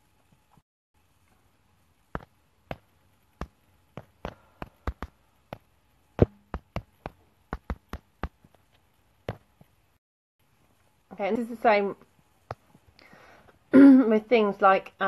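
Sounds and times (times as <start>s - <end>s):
sharp taps and clicks: 2.1s - 9.7s.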